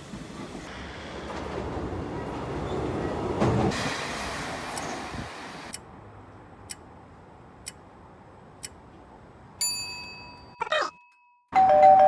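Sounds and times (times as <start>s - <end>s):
electric train running past: 0.0s - 5.8s.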